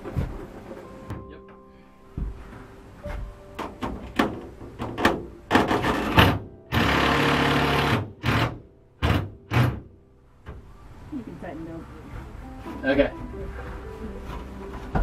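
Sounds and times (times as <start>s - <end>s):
power drill driving screws: 5.8s - 9.7s.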